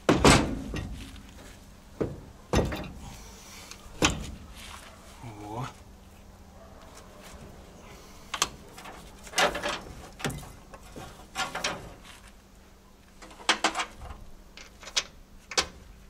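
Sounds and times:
metallic clanks of engine parts: 0.0s - 1.2s, 2.0s - 3.2s, 4.0s - 4.4s, 8.3s - 12.2s, 13.2s - 15.8s.

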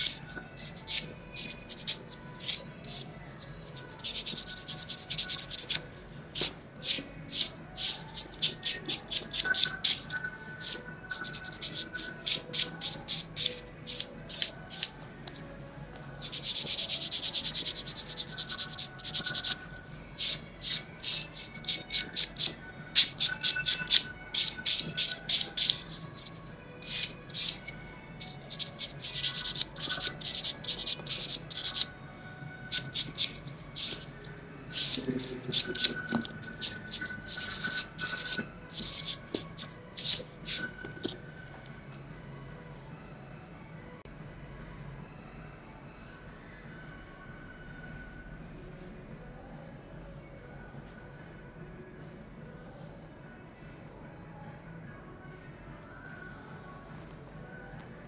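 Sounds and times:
nail buffer rubbing fingernails: 0.0s - 5.8s, 6.4s - 15.4s, 16.2s - 31.9s, 32.7s - 41.2s.

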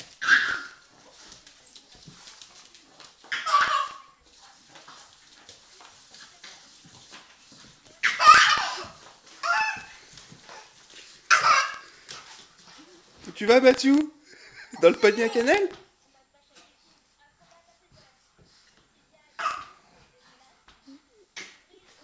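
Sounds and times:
small dog play noises: 0.0s - 15.8s, 16.5s - 22.0s
baby laughing and squealing: 0.2s - 0.8s, 3.3s - 4.1s, 8.0s - 9.9s, 11.3s - 11.9s.

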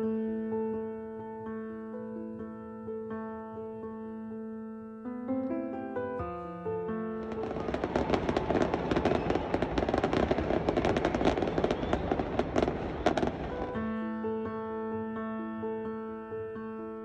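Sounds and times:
piano music: 0.0s - 17.0s
fireworks crackling and popping: 7.2s - 13.9s.

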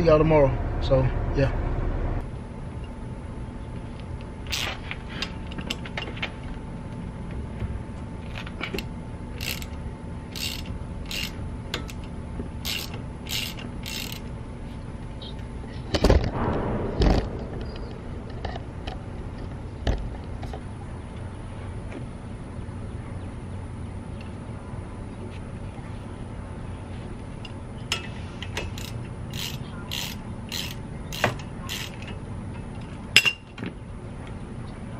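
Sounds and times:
socket ratchet clicking: 9.4s - 12.0s, 12.7s - 14.3s, 28.6s - 32.1s.

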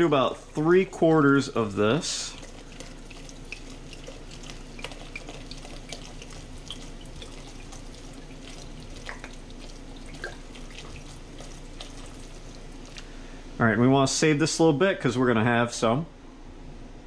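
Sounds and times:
small drips: 0.0s - 13.5s
wine pouring into pot: 0.0s - 13.6s.

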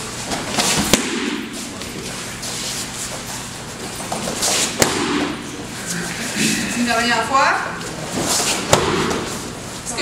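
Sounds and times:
kick slapping a kicking paddle: 0.8s - 1.4s, 4.7s - 5.4s, 8.6s - 9.3s.

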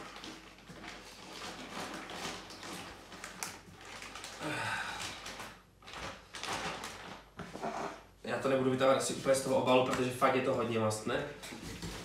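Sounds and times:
plastic bag crinkling: 0.0s - 7.9s
person grunting: 4.4s - 5.0s.

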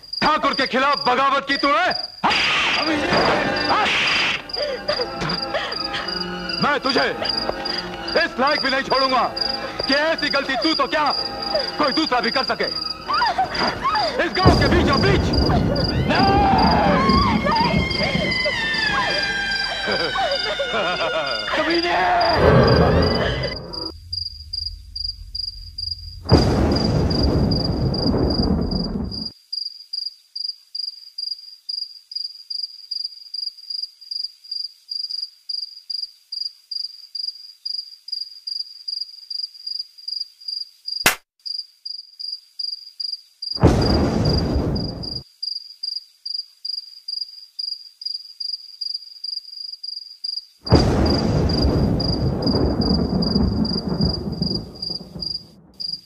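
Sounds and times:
crickets chirping: 0.0s - 56.0s
deep thunder: 2.8s - 29.3s, 43.6s - 45.2s, 50.7s - 56.0s.

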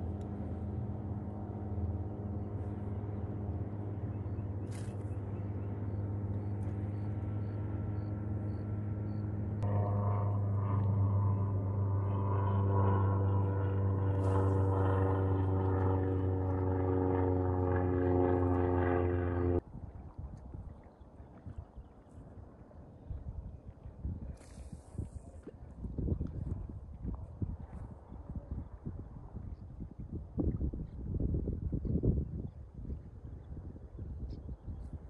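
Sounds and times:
engine humming: 0.0s - 19.6s.

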